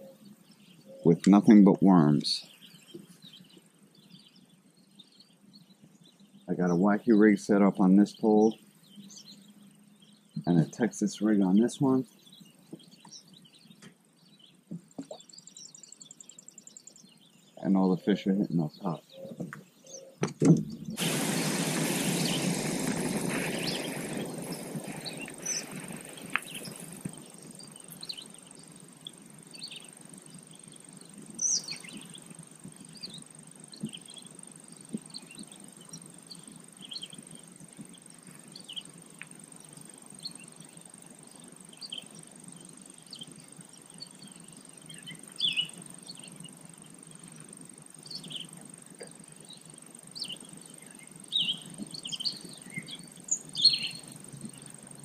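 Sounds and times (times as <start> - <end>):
birds chirping: 0.0 - 55.0
loud rushing noise: 21.0 - 27.1.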